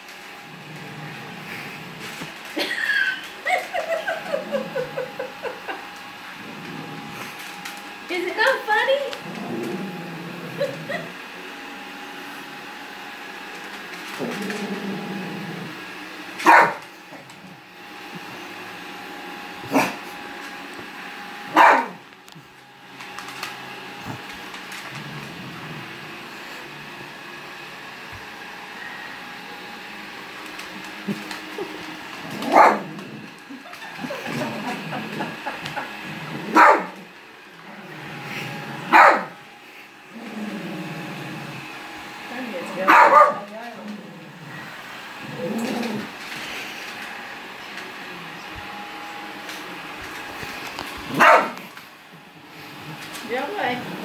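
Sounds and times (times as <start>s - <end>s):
robot vacuum humming: 0.0s - 54.0s
small dog barking: 16.4s - 16.8s, 21.5s - 22.0s, 32.4s - 32.9s, 36.5s - 37.0s, 38.9s - 39.3s, 42.9s - 43.5s, 51.1s - 51.6s.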